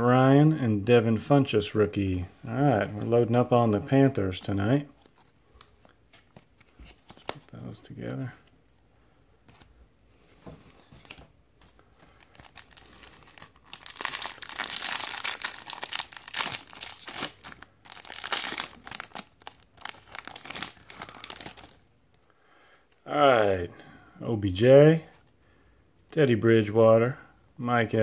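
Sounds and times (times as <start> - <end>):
foil wrapper tearing and crinkling: 12.1 - 21.8.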